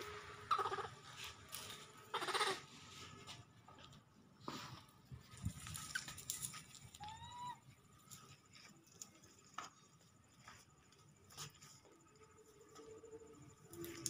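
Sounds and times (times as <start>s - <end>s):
rustling of leaves and twigs: 0.0s - 14.0s
monkey high rising call: 0.5s - 1.0s.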